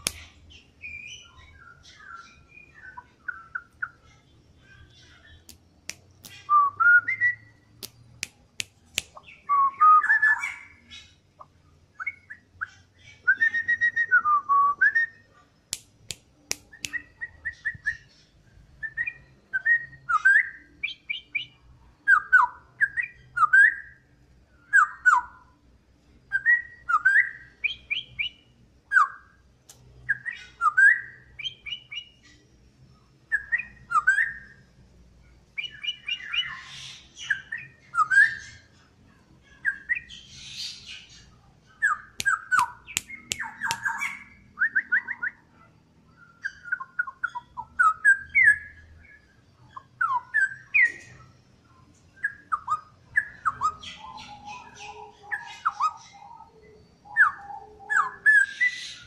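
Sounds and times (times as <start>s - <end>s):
bird singing whistled phrases: 6.2s - 7.6s, 9.2s - 10.8s, 13.1s - 15.2s, 18.8s - 24.0s, 26.3s - 29.3s, 30.1s - 32.2s, 33.3s - 34.6s, 35.6s - 38.6s, 41.8s - 45.5s, 52.2s - 59.0s
sharp clicks: 15.7s - 17.0s, 42.2s - 44.0s.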